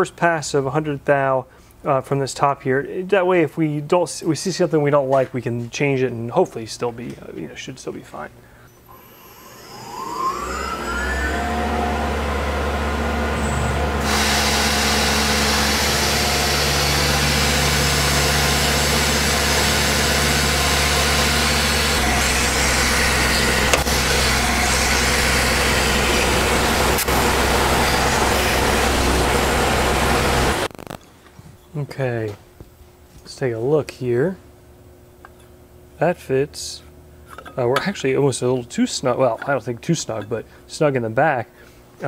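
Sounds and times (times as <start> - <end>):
low hum: 8.4 - 31.0
mill spindle whine: 8.7 - 30.7
end mill cutting hiss: 13.0 - 30.7.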